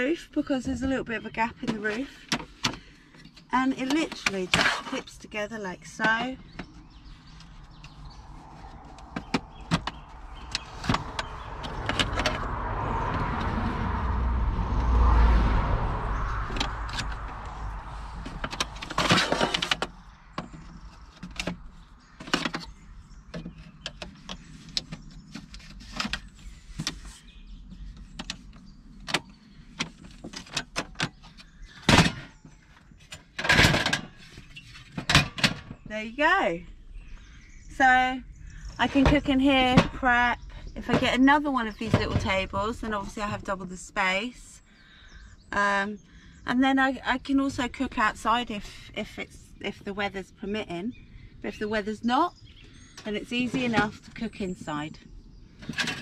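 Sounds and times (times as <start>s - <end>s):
low rumble: 6.4s - 23.3s.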